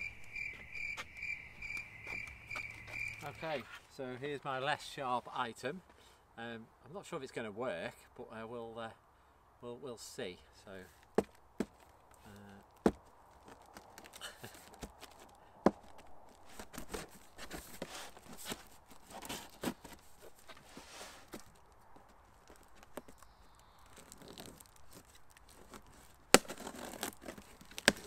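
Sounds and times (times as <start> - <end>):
tape tearing: 22.2 - 28.0.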